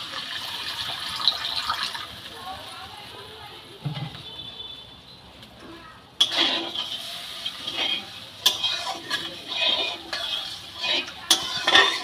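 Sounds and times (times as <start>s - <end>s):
sizzling in a pan: 0.0s - 4.3s, 4.9s - 12.0s
metal spatula scraping a pan: 6.2s - 12.0s
spatula clinking against pan: 6.2s - 12.0s.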